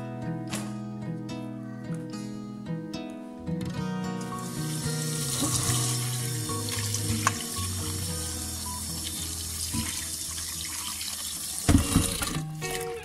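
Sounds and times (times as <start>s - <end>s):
tap water running into bowl: 4.3s - 12.8s.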